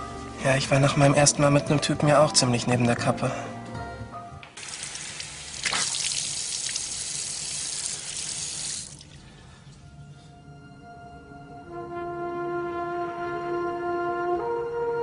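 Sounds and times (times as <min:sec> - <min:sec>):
shower water running: 0:04.6 - 0:09.2.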